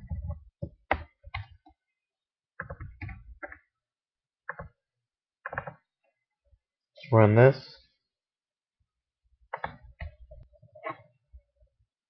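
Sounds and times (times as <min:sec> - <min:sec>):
keyboard keystrokes: 0:09.5 - 0:10.2.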